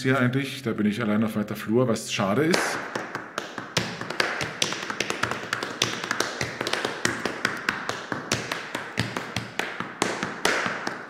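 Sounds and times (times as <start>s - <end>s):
tap shoes on hard floor: 2.5s - 11.0s.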